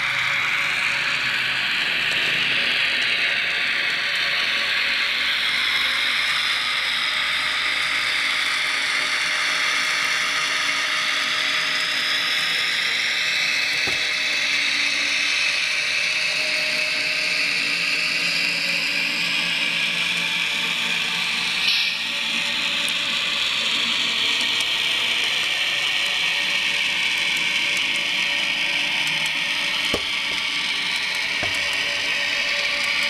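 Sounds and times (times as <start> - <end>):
electric locomotive sound from speaker: 0.0 - 33.0
short knock: 13.7 - 14.1, 30.0 - 30.4, 31.4 - 32.1.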